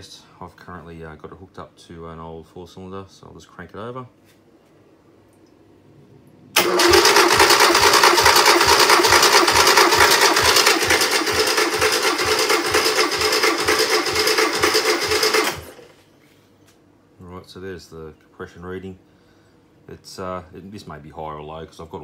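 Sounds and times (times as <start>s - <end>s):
engine cranking on starter motor: 6.6s - 16.0s.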